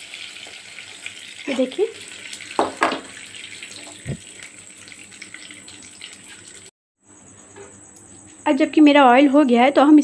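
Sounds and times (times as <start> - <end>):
oil sizzling and bubbling: 0.0 - 6.7.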